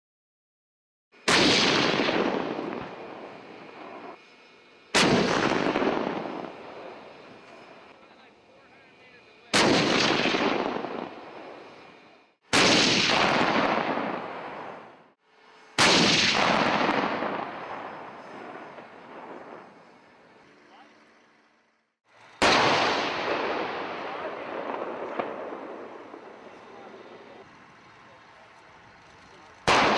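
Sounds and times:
heavy cannon-like booms: 1.3 - 3.2, 5.0 - 6.9, 9.5 - 11.2, 12.5 - 14.6, 15.8 - 19.6.

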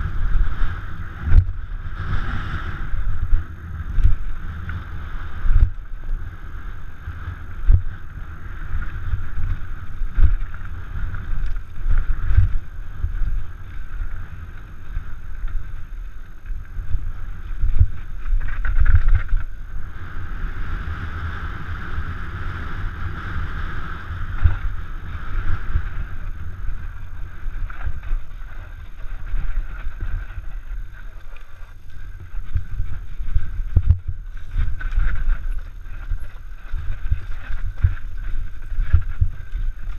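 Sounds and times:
wind rumble on microphone: 0.0 - 39.9
bike knocks and rattles: 17.6 - 19.6
tyre rumble on dirt: 24.2 - 39.9.

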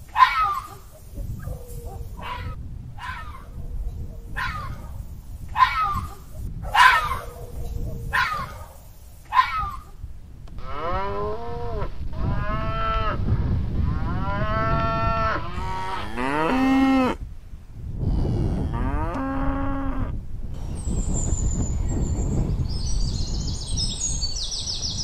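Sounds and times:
cattle mooing: 10.6 - 17.2.

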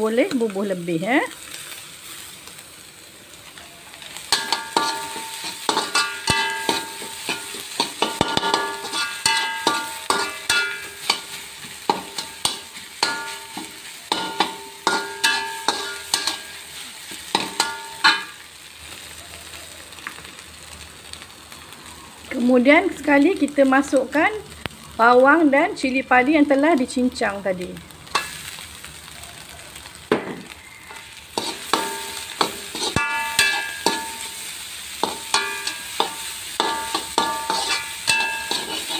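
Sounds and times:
faint sizzle: 0.0 - 38.9
metal spatula scraping a wok: 4.0 - 18.4, 28.0 - 28.7, 30.8 - 38.9.

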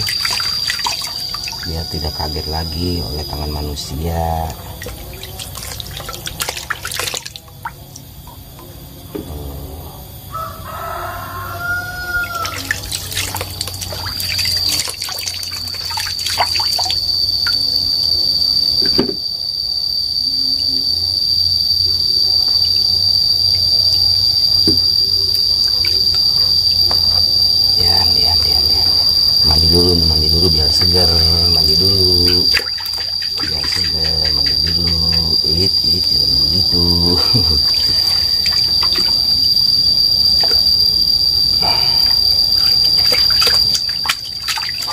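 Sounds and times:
water splashing in a basin: 0.0 - 8.8, 12.2 - 17.7, 24.6 - 41.0, 41.6 - 44.9
high insect drone: 0.0 - 44.9
rooster crowing: 10.2 - 13.3.

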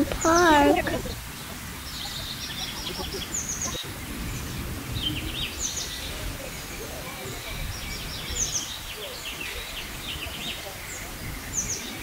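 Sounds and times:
low outdoor rumble: 0.0 - 9.2
small birds chirping: 0.0 - 12.0.

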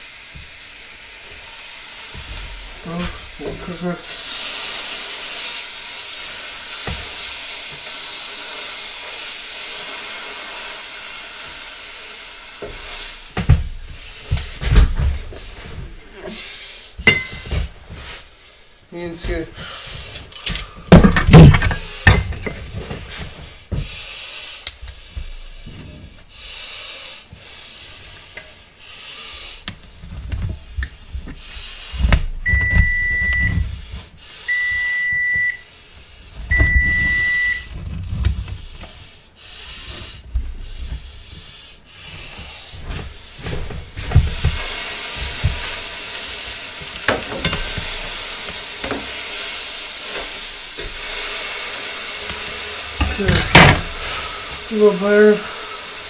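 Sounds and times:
meat sizzling in a pan: 0.0 - 14.4, 43.9 - 56.0
kitchen knocks and clatter: 17.0 - 17.8, 20.9 - 23.1, 47.1 - 47.9, 53.0 - 54.0.

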